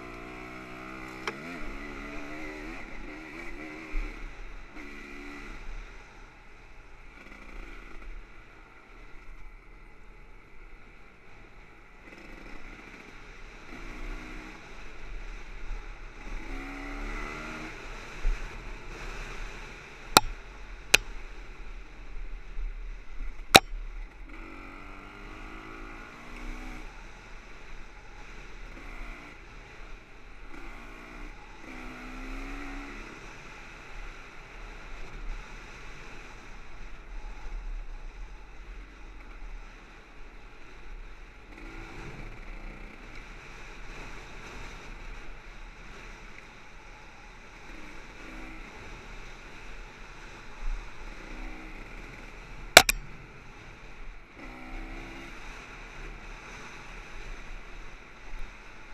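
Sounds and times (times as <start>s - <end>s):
sharp click: 52.8s - 53.0s.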